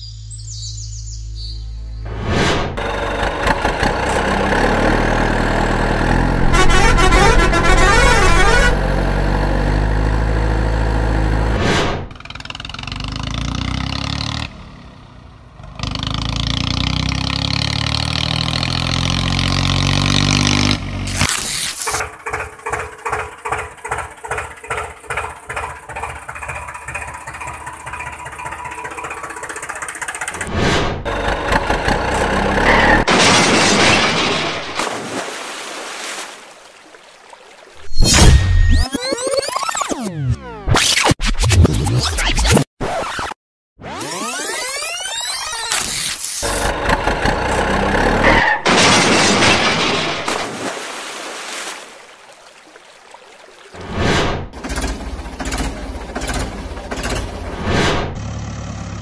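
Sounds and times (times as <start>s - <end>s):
engine chugging: 2.8s - 11.2s, 22.0s - 33.0s, 46.4s - 48.4s, 54.5s - 59.0s
truck horn: 3.8s - 10.1s.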